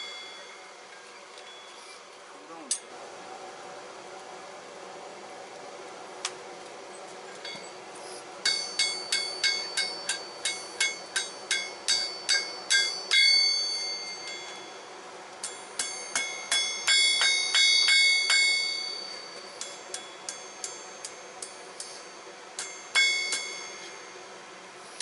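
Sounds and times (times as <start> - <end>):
hammer ringing on anvil: 0.0 - 0.9, 7.4 - 7.8, 8.4 - 25.0.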